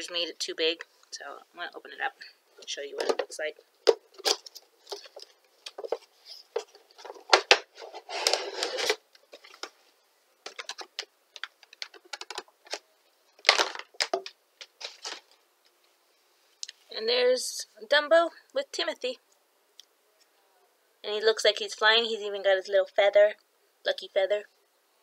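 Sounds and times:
packaging rustling: 0:03.8 - 0:09.8, 0:10.4 - 0:12.8, 0:13.4 - 0:15.4
plastic bag crinkling: 0:10.4 - 0:12.8, 0:13.4 - 0:15.4.

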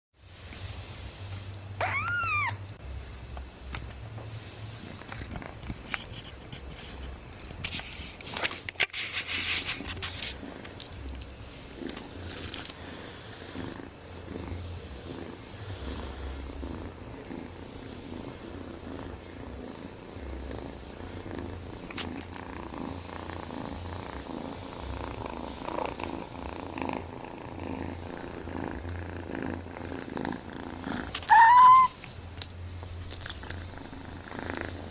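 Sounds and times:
kitten meowing: 0:01.8 - 0:02.6, 0:31.2 - 0:32.0
kitten purring loudly: 0:04.8 - 0:08.4, 0:09.1 - 0:32.0, 0:33.1 - 0:34.9.

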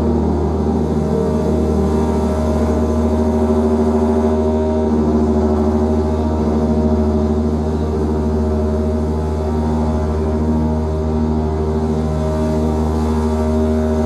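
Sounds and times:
deep drone hum: 0:00.0 - 0:14.0
long held tones: 0:00.0 - 0:14.0.

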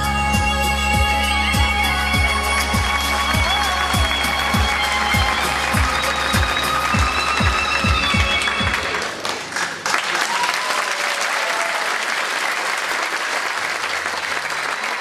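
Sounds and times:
backing music: 0:00.0 - 0:09.2
audience applauding: 0:02.2 - 0:15.0.

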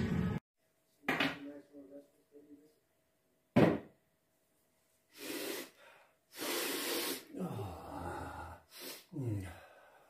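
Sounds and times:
man gasping and breathing hard: 0:05.1 - 0:10.0.

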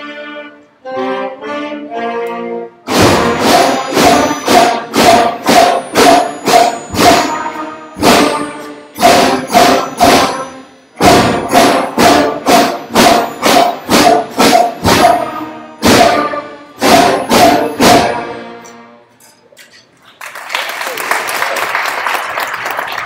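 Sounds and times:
concert band playing loud chords: 0:02.9 - 0:18.9.

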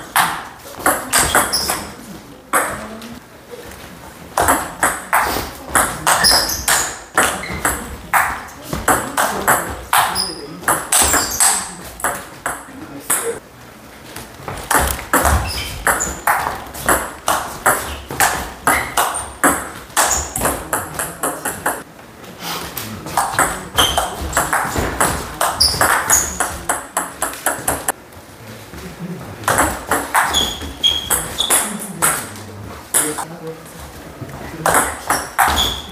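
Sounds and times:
high-pitched squeaks: 0:10.1 - 0:11.7, 0:15.2 - 0:16.4, 0:20.0 - 0:20.5, 0:25.6 - 0:26.6, 0:30.2 - 0:31.8, 0:35.1 - 0:35.9.

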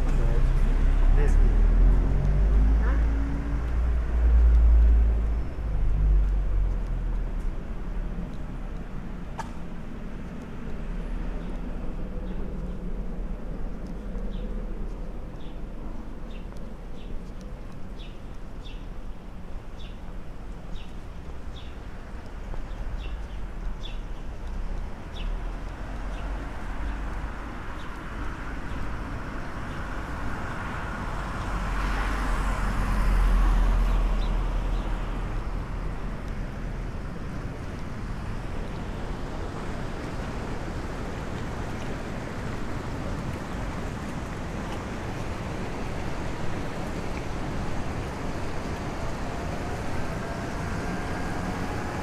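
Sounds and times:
car passing by: 0:00.0 - 0:07.1, 0:25.1 - 0:52.0
traffic noise: 0:00.0 - 0:52.0.

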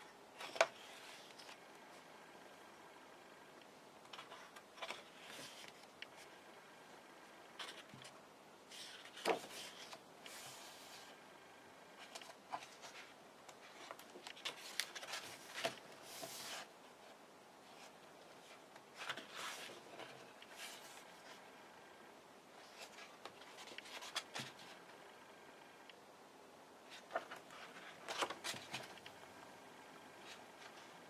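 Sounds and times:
book pages turning: 0:00.4 - 0:01.7, 0:04.1 - 0:06.4, 0:07.5 - 0:11.2, 0:12.0 - 0:16.7, 0:17.7 - 0:21.5, 0:22.6 - 0:24.8, 0:26.9 - 0:29.2.

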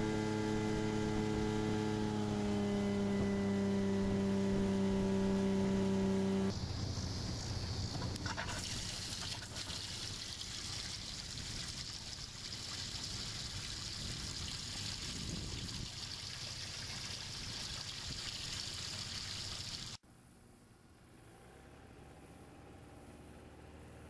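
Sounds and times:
pump spraying water splashing: 0:06.5 - 0:20.0.

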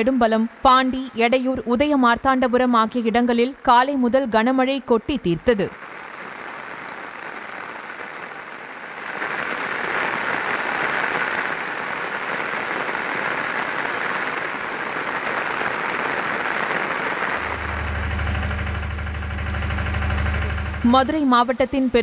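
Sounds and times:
heavy rain pouring: 0:05.8 - 0:21.2
low engine hum: 0:17.4 - 0:21.2.

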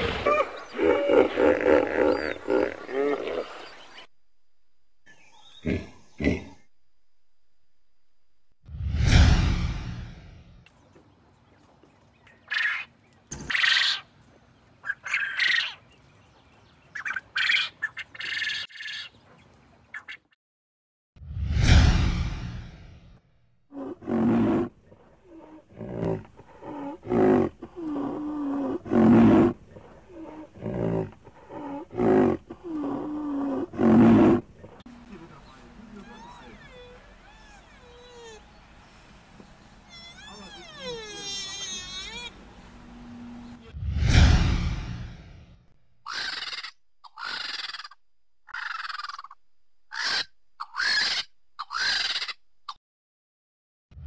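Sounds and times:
rhinoceros whining calls: 0:35.8 - 0:38.6, 0:39.8 - 0:42.4.

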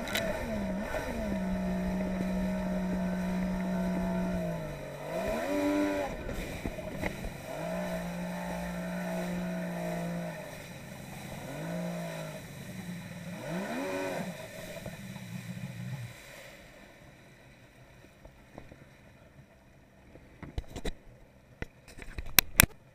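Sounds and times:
personal watercraft engine revving: 0:00.0 - 0:17.0.

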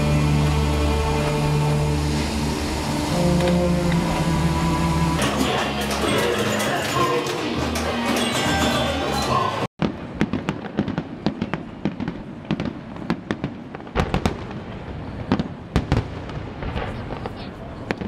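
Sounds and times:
music: 0:00.0 - 0:09.7
voices: 0:05.2 - 0:09.7
fireworks bangs and crackles: 0:09.8 - 0:18.0
heavy fireworks booms: 0:09.8 - 0:18.0.

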